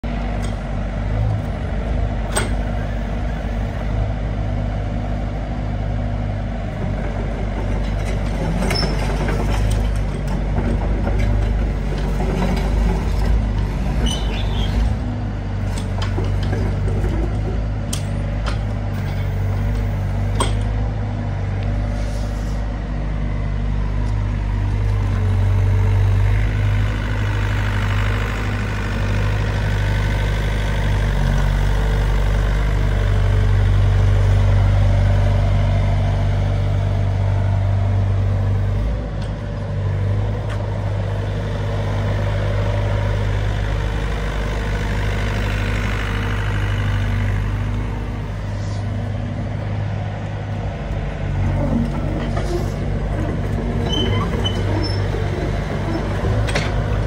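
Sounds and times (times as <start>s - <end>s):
excavator diesel engine running: 0.0s - 57.0s
sharp metal clanks and knocks: 20.4s - 20.7s.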